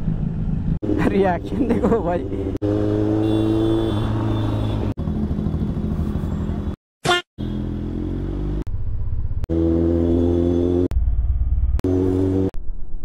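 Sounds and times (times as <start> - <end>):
motorcycle engine running: 5.0 - 6.8, 7.7 - 12.4.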